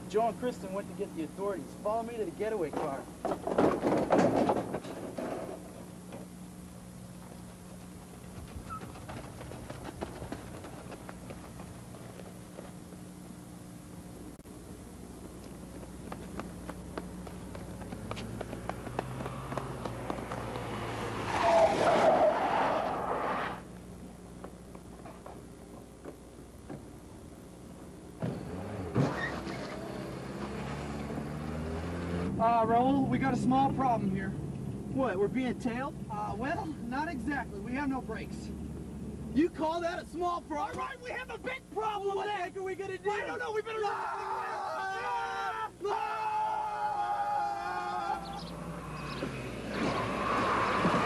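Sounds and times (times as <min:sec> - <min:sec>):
running footsteps on pavement: 0:07.5 - 0:13.3, 0:15.2 - 0:20.8
car engine running: 0:14.8 - 0:21.4
car sliding on loose dirt: 0:18.1 - 0:23.6, 0:28.8 - 0:30.8, 0:48.4 - 0:51.0.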